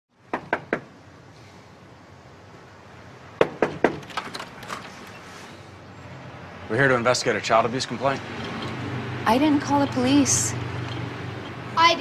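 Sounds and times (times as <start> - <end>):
knocking on a door: 0.3 - 0.9, 3.4 - 4.1.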